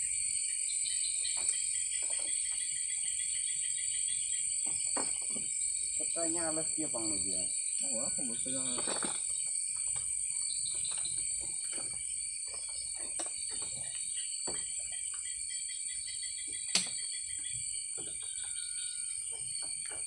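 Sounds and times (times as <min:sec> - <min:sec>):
crickets and insects chirping: 0:00.0 - 0:20.0
soft knocks and clatter: 0:04.6 - 0:05.6, 0:10.7 - 0:15.0.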